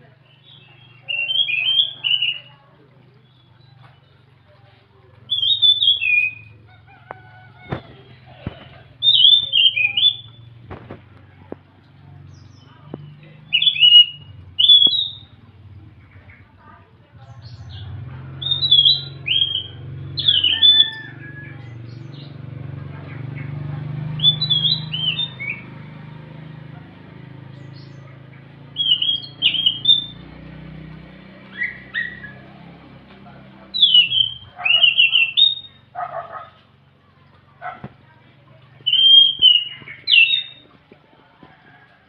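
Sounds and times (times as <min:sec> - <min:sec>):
thrush singing whistled notes: 0:00.1 - 0:04.2, 0:05.2 - 0:06.8, 0:09.0 - 0:10.6, 0:12.2 - 0:15.5, 0:17.4 - 0:22.4, 0:23.2 - 0:26.0, 0:27.5 - 0:36.0, 0:38.7 - 0:40.7.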